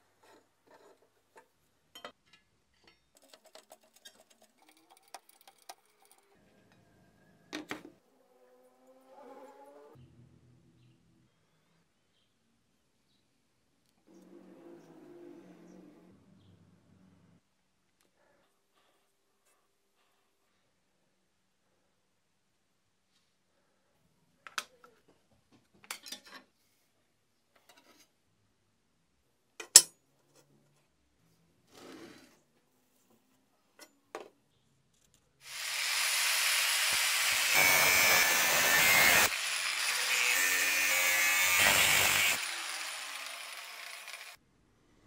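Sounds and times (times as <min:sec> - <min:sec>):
power tool grinding metal: 0:35.5 - 0:44.4.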